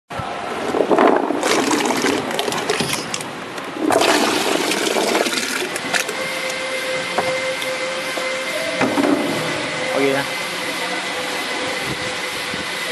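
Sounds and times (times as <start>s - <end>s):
steady machine hum: 0.2s - 12.9s
water churning and splashing: 0.7s - 6.7s.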